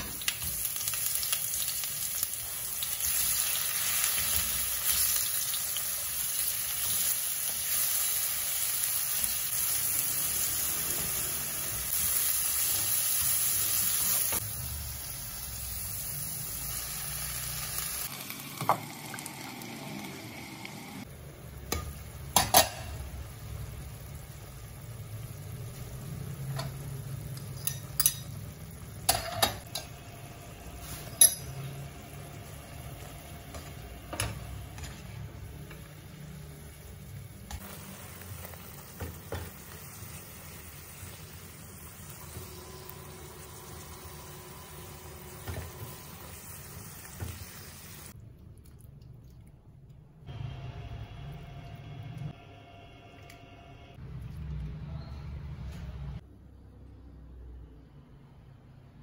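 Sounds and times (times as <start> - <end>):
tofu sizzling in oil: 0.0 - 19.8.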